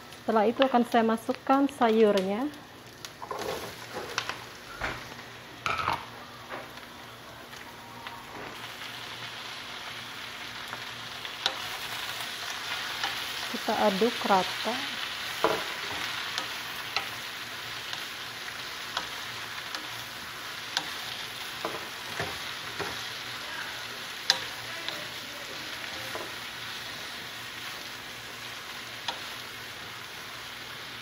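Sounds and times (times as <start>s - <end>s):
vegetables sizzling in hot oil: 0.0s - 31.0s
wooden spatula scraping a pan: 3.2s - 4.2s.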